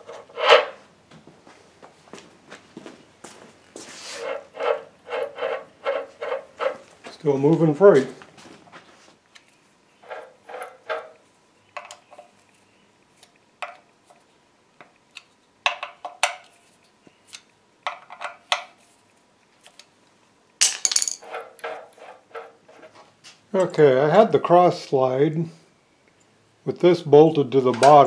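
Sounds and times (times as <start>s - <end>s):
metal parts clinking: 20.6s - 22.0s.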